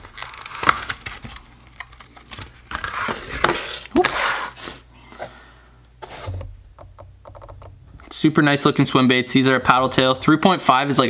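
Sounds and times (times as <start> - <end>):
plastic packaging crinkling: 0.0 - 4.0.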